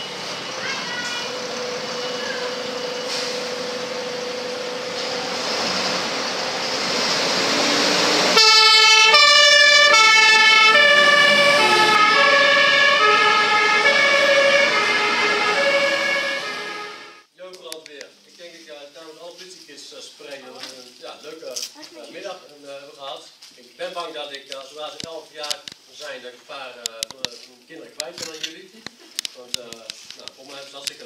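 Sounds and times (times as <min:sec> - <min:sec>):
two-tone siren: 0:00.0 - 0:05.4, 0:07.6 - 0:17.2
fire engine pulling out: 0:00.0 - 0:17.3.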